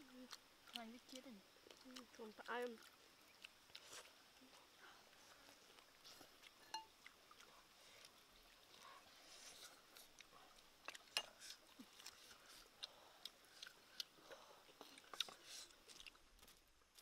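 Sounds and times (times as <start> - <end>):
faint clicks of eating by hand: 0.1 - 4.1.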